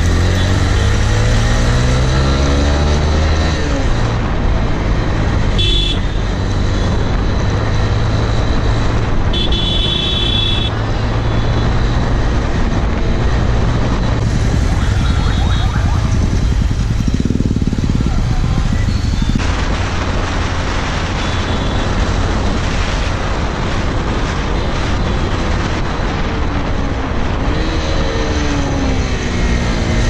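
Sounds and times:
traffic: 0.0 - 30.0
horn beeping: 9.3 - 10.7
motorcycle engine pulling hard: 11.8 - 23.0.

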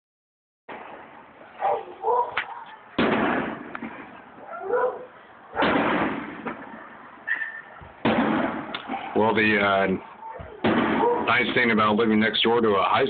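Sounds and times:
firework shells booming: 3.0 - 4.4, 5.6 - 7.0, 7.8 - 9.6, 10.6 - 11.8.

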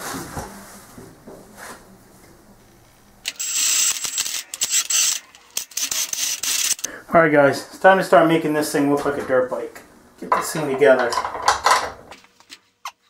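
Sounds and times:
metallic ratcheting: 3.3 - 6.9.

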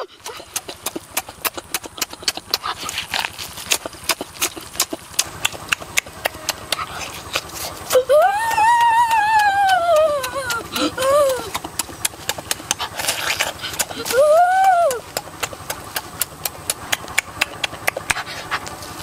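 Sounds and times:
wet chewing and lip-smacking: 0.0 - 19.0
drawn-out vocal sound: 6.3 - 15.8.

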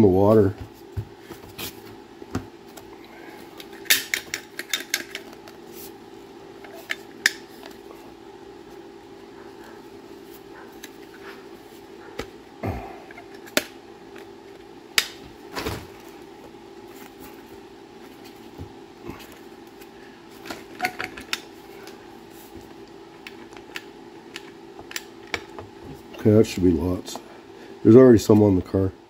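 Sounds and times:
steady low hum: 0.0 - 29.0
tools clicking and knocking: 3.6 - 5.4, 20.8 - 21.4.

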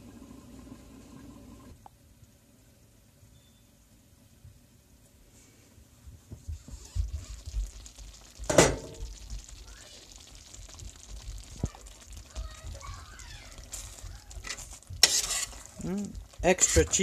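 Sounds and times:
food simmering and sizzling: 6.2 - 17.0
spoon stirring in pan: 10.4 - 17.0.

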